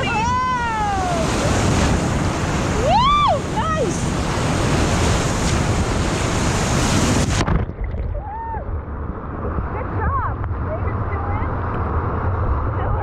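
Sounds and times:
river rapid rushing: 0.0 - 7.4
wave splashing over boat: 0.0 - 13.0
wind on microphone: 0.0 - 13.0.

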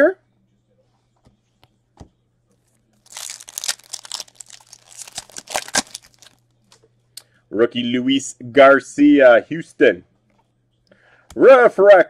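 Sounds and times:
foil wrapper tearing and crinkling: 3.0 - 6.4.

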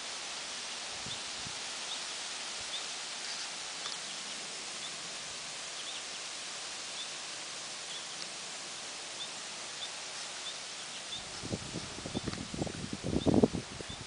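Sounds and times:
outdoor background hiss: 0.0 - 14.0
faint high bird chirps: 5.7 - 6.2, 7.8 - 8.2.

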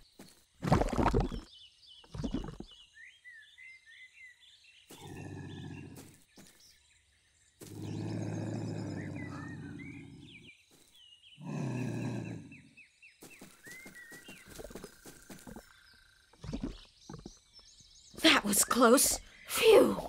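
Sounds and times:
birds chirping: 0.0 - 20.0
cartoon lynx growling low: 7.7 - 10.5, 11.4 - 12.7.

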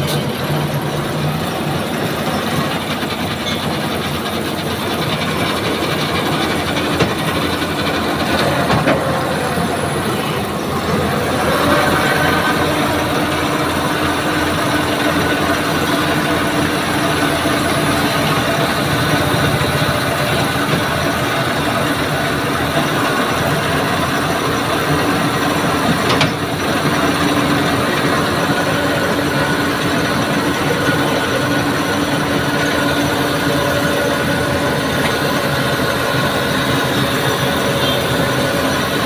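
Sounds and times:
diesel engine idling: 0.0 - 39.0.

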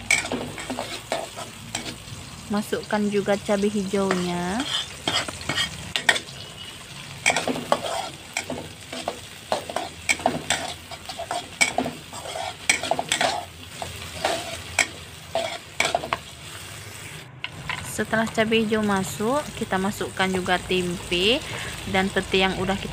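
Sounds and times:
metal spatula scraping wok: 0.0 - 2.4, 3.6 - 18.1
hot oil sizzling: 0.0 - 22.9.

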